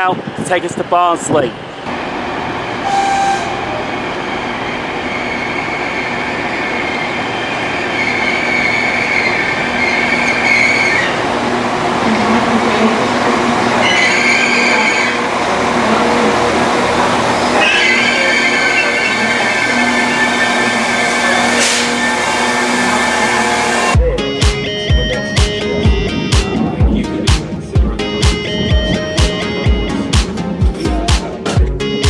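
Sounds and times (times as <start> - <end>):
train rumbling: 0.0 - 31.8
high brake squeal: 6.8 - 11.2, 13.8 - 15.3, 17.5 - 23.7.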